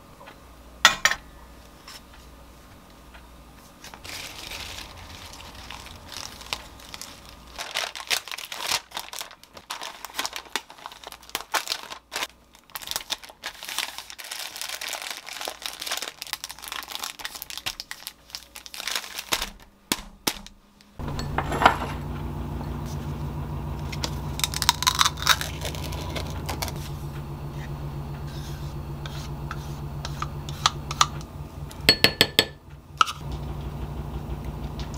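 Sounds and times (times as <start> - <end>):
steady low hum: 0.0 - 7.7, 20.6 - 34.9
paper crinkling and rustling: 3.6 - 20.6, 23.9 - 27.0.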